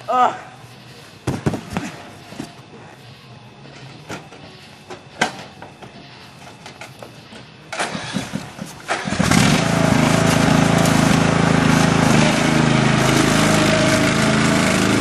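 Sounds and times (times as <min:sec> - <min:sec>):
small petrol engine starting and running: 0:07.7 - 0:15.0.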